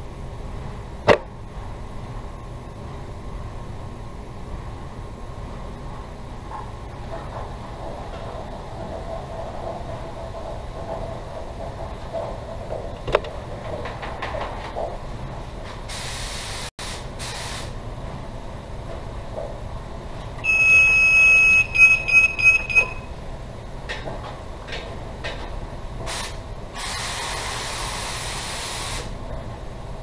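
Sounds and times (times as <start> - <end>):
low background hum: 0.0 - 30.0
compressed-air spray gun hissing: 15.9 - 17.7, 26.1 - 29.1
high electronic beeps: 20.4 - 23.1.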